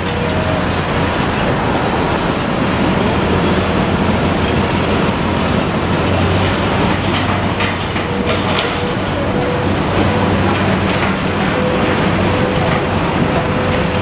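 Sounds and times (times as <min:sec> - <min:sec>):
low hum: 0:00.0 - 0:05.6
demolition machinery working: 0:00.0 - 0:14.0
road traffic rumble: 0:00.0 - 0:14.0.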